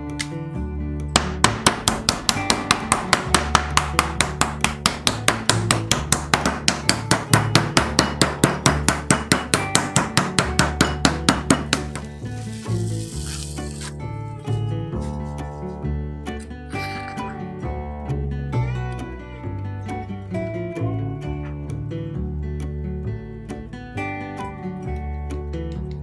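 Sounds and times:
acoustic guitar music: 0:00.0 - 0:26.0
meat pounder striking meat on board: 0:01.1 - 0:12.1.

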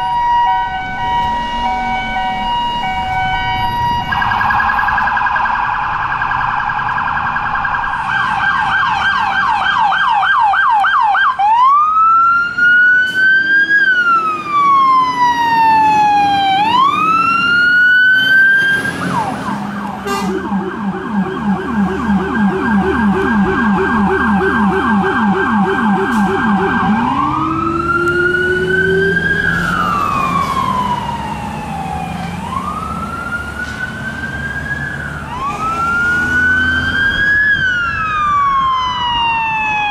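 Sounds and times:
low rumbler siren: 0:00.0 - 0:39.9
sirens yelping and wailing: 0:00.0 - 0:39.9.

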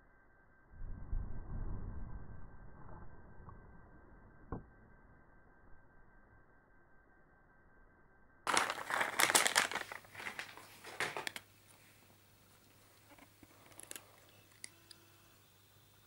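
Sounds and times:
cat crunching dry kibble: 0:08.5 - 0:11.5, 0:12.6 - 0:14.7.

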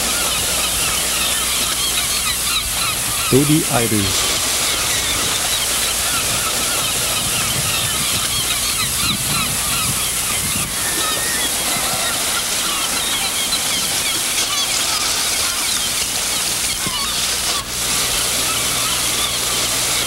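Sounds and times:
seabirds calling: 0:00.0 - 0:20.0.

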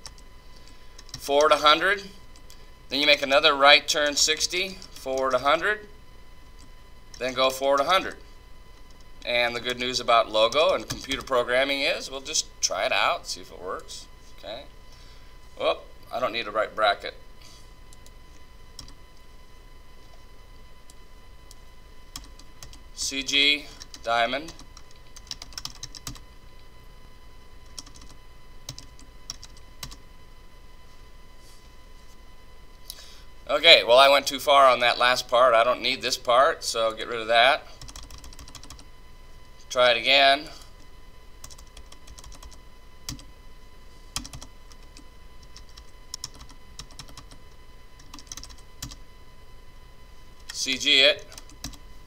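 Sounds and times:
computer keyboard keystrokes: 0:24.8 - 0:26.2, 0:37.8 - 0:38.8, 0:44.2 - 0:47.3, 0:48.0 - 0:49.0.

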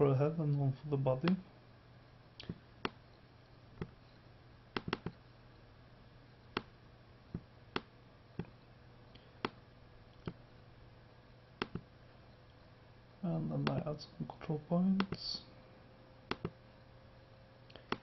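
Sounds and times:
faint low hum: 0:00.0 - 0:18.0
computer mouse clicking: 0:04.8 - 0:05.2, 0:11.6 - 0:11.9, 0:16.3 - 0:16.6.

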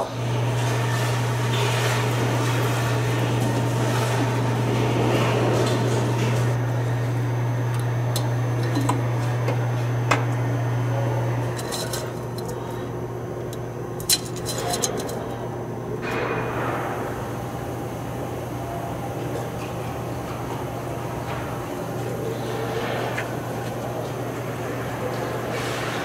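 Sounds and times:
steady low hum: 0:00.0 - 0:26.0
metal parts clinking: 0:11.6 - 0:12.6, 0:14.0 - 0:15.4.

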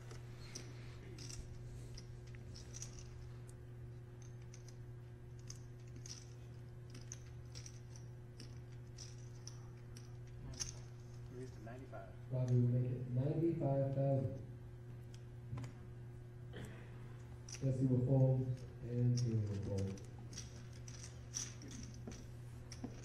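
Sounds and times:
steady low hum: 0:00.0 - 0:23.0
poker chips clicking: 0:00.5 - 0:03.2, 0:05.4 - 0:11.2, 0:19.2 - 0:23.0.

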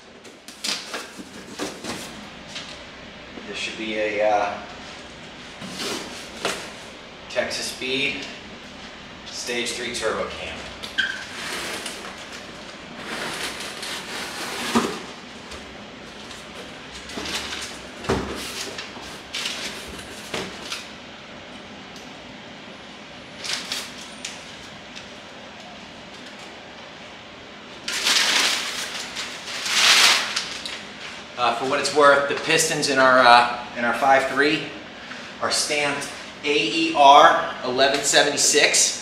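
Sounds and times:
packing paper rustling: 0:00.2 - 0:02.8, 0:10.7 - 0:15.4, 0:16.1 - 0:20.9, 0:23.4 - 0:24.8, 0:27.8 - 0:31.2.

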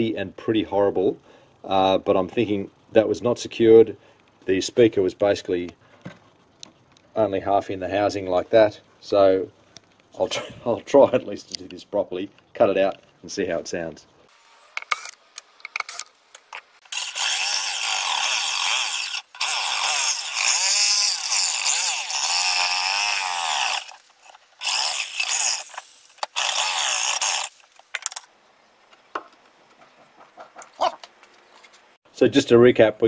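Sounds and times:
jigsaw cutting wood: 0:16.9 - 0:27.6.

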